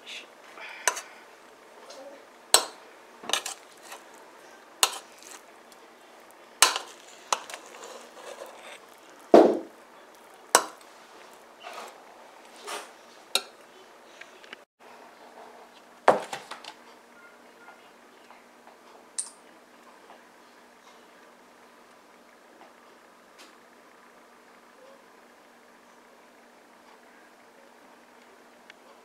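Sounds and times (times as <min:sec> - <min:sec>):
ladle scraping metal pot: 0:02.6 - 0:04.2, 0:04.8 - 0:05.5, 0:06.6 - 0:09.0.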